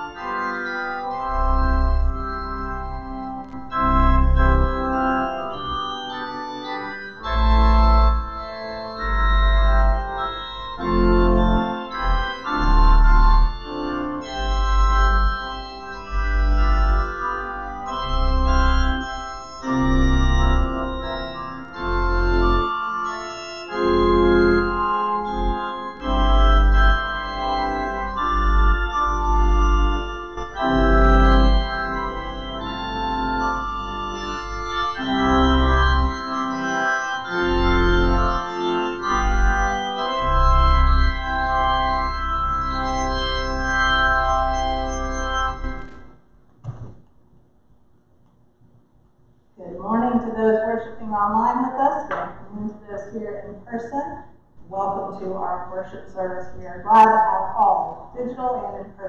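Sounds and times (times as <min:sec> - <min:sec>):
deep organ bass pedal notes: 0:00.0 - 0:47.1
organ chords: 0:00.0 - 0:48.6, 0:49.3 - 0:59.0.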